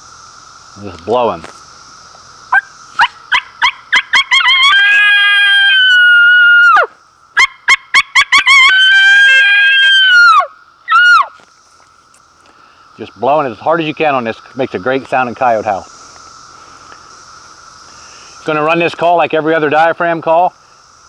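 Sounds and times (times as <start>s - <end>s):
coyote call yips and howl: 2.5s - 11.3s.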